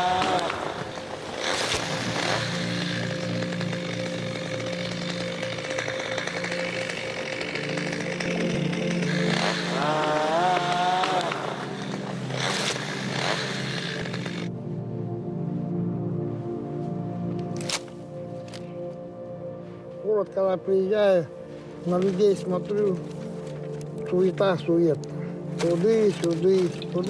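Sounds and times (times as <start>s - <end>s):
small engine running: 0.0s - 14.5s.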